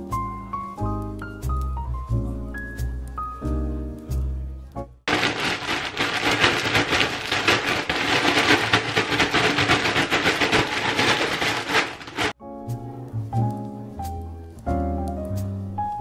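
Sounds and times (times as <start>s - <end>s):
cereal rattling in plastic bag: 5.1s - 12.4s.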